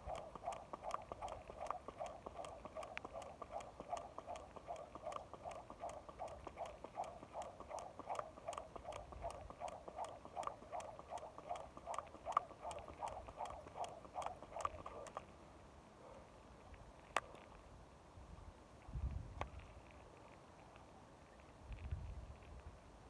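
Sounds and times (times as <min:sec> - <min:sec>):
skipping rope slapping pavement: 0:00.0 - 0:15.2.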